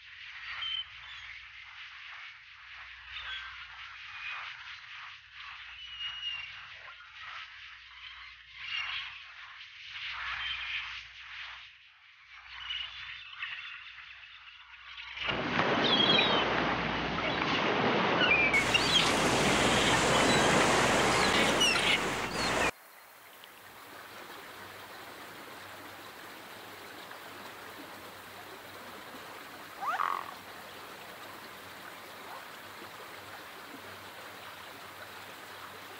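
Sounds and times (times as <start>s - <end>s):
gulls and ducks calling: 18.3s - 22.7s, 29.7s - 30.5s.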